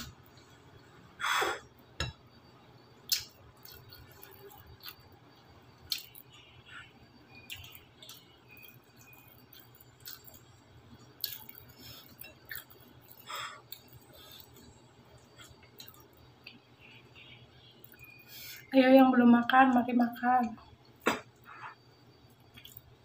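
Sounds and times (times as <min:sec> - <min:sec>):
chewing and mouth noises: 0:03.1 - 0:05.1, 0:05.8 - 0:06.3, 0:07.4 - 0:10.5, 0:11.1 - 0:16.6, 0:22.4 - 0:22.9.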